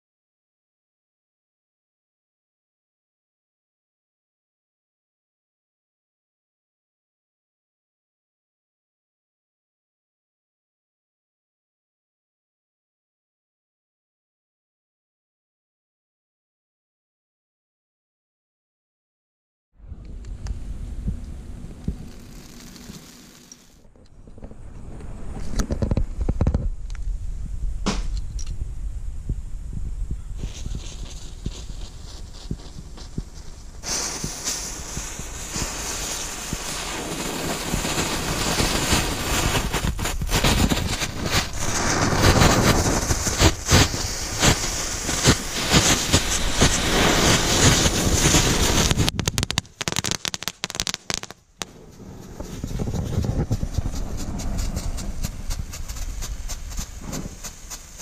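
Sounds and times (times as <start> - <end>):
firework hissing and crackling: 21.7 - 23.8, 30.4 - 58.0
sharp snaps: 48.8 - 51.7.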